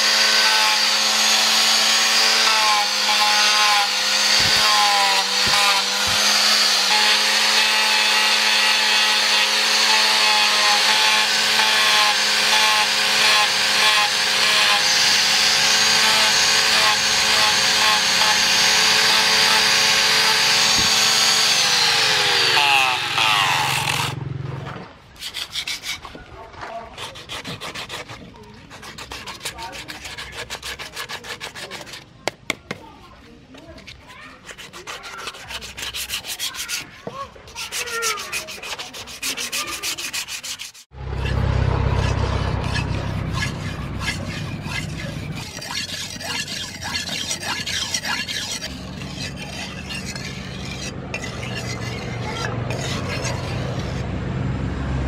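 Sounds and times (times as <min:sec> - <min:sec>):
angle grinder sanding wood: 0:00.0 - 0:24.2, 0:25.2 - 0:26.2, 0:26.8 - 0:32.1, 0:33.6 - 0:54.1
sandpaper rubbing by hand: 0:25.2 - 0:26.2, 0:26.8 - 0:32.1, 0:33.8 - 0:41.4, 0:42.0 - 0:54.0.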